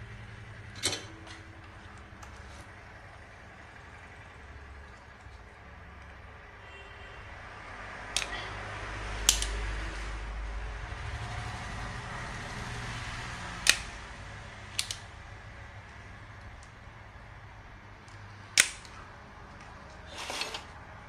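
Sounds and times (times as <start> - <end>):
steady low hum: 0.0 - 21.0
desoldering pump clicking: 8.1 - 8.4, 9.2 - 9.7, 13.6 - 14.0, 14.6 - 15.3, 18.0 - 19.0.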